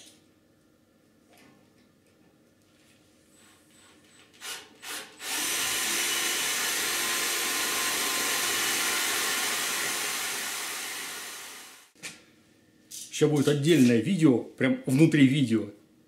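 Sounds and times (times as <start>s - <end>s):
drill running: 4.4s - 11.9s.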